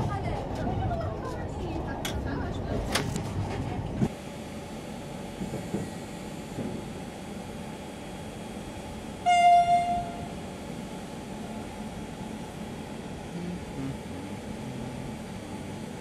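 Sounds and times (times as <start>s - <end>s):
train horn blast: 9.2s - 10.3s.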